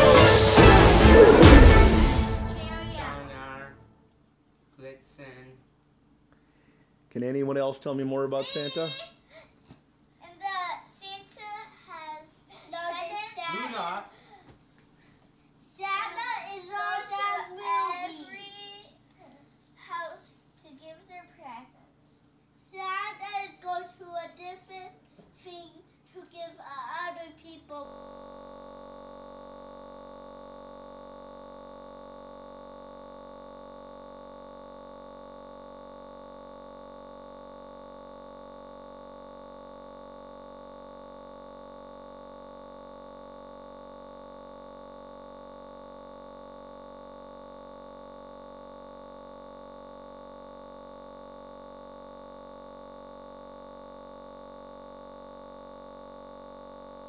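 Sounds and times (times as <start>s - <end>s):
electronic drone: 0.0s - 3.3s, 27.8s - 57.0s.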